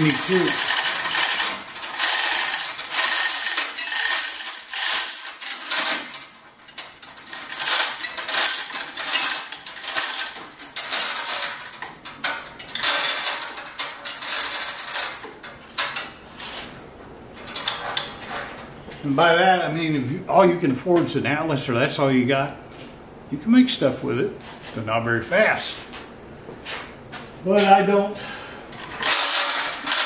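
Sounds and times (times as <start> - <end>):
steel chain rattling through hoist: 0.0 - 16.1, 28.8 - 30.0.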